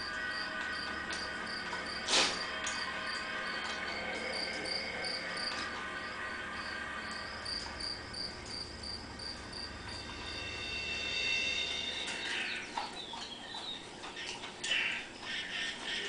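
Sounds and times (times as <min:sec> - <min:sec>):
crickets chirping: 0:00.0 - 0:12.7.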